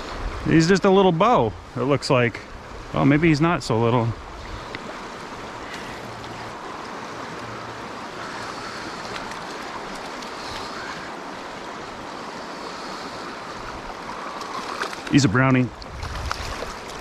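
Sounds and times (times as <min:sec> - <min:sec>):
stream rushing: 0:00.0 - 0:17.0.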